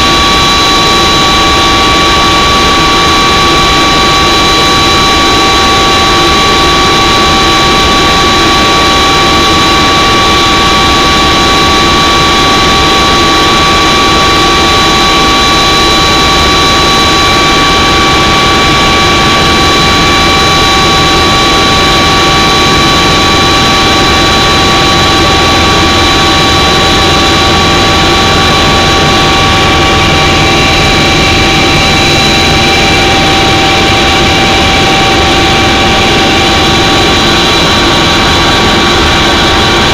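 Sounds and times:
high whining tones: 0.0s - 39.9s
engine and air rush: 15.1s - 39.9s.

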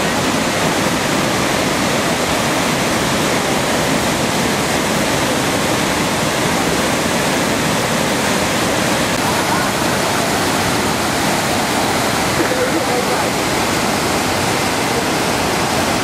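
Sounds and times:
water rushing over rock ledges: 0.0s - 16.0s.

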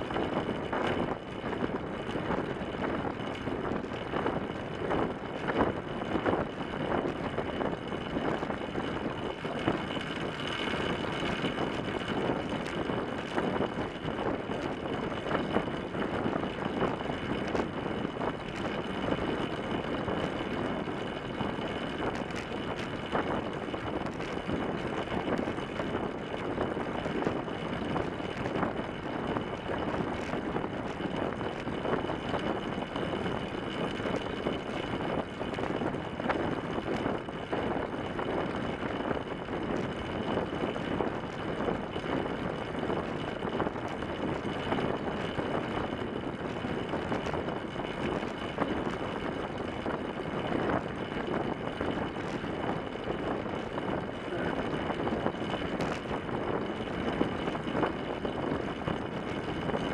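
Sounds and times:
wind and tyre noise: 0.0s - 59.9s.

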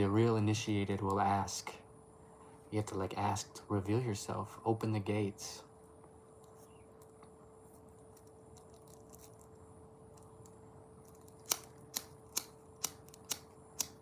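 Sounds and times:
faint steady hum: 0.0s - 14.0s
lighter clicking: 11.2s - 14.0s.

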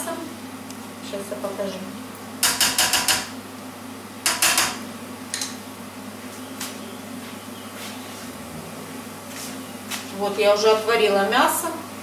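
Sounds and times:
spatula knocking frying pan: 2.4s - 3.3s, 4.3s - 4.8s.

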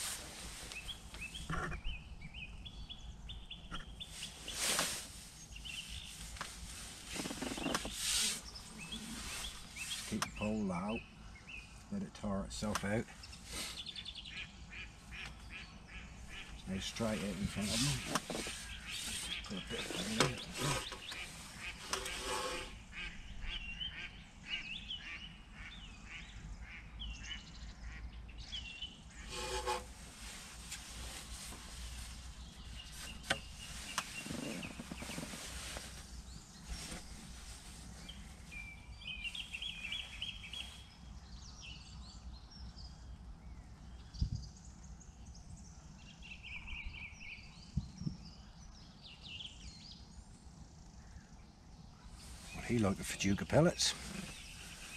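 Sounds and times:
small birds chirping: 0.0s - 54.9s
waterfowl honk: 29.1s - 29.9s.

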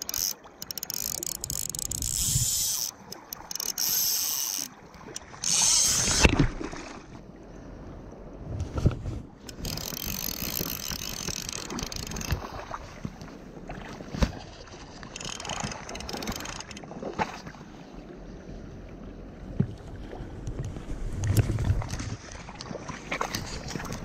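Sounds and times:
fly reel drag buzzing: 0.0s - 6.3s, 9.5s - 12.4s, 15.1s - 16.8s.

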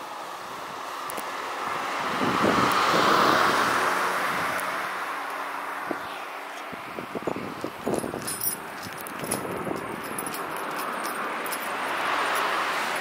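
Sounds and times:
van driving past: 0.0s - 7.5s.

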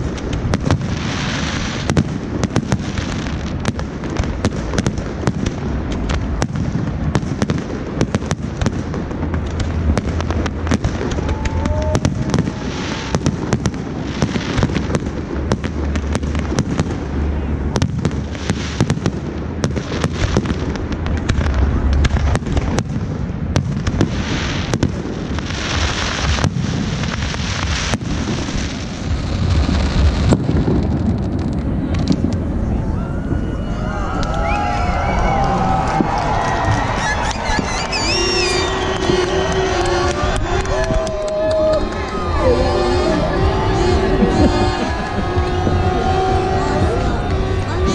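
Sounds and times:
fireworks bangs and crackles: 0.0s - 47.9s
low rumble: 20.4s - 24.0s, 27.6s - 47.9s.

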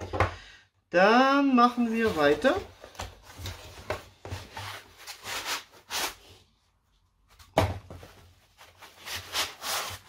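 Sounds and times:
foam scraping against cardboard: 8.9s - 10.0s.

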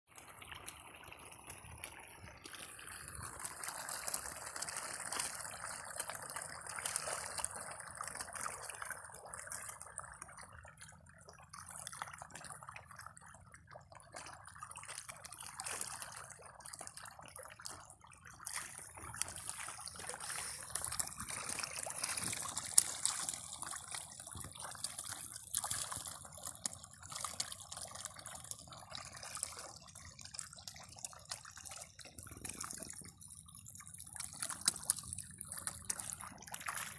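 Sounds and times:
fish splashing at water surface: 0.1s - 36.9s.

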